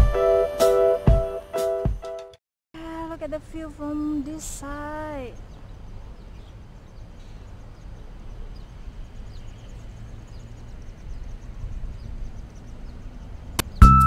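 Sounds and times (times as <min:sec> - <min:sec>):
loud keyboard music: 0:00.0 - 0:02.4.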